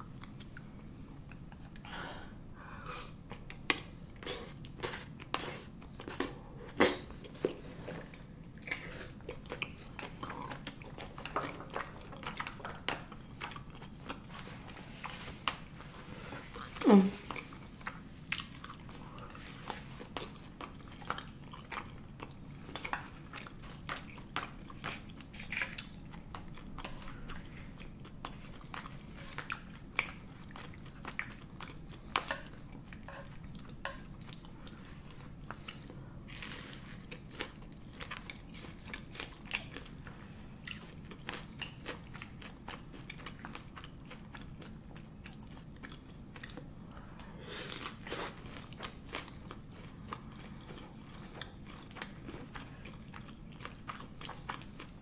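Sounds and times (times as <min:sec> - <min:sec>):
wet chewing and smacking: 0:03.2 - 0:55.0.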